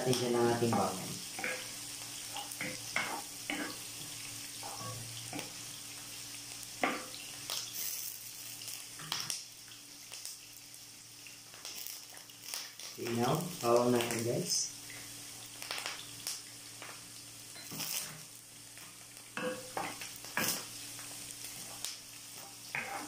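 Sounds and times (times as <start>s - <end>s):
onions sizzling in oil: 0.0s - 23.0s
wooden spatula scraping pan: 22.7s - 23.0s.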